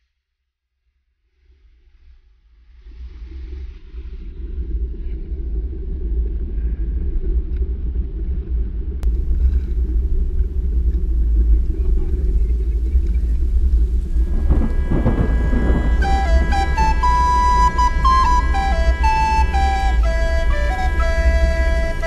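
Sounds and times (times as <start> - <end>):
muffled wind and sea rumble: 3.8 - 22.0
background music: 14.3 - 22.0.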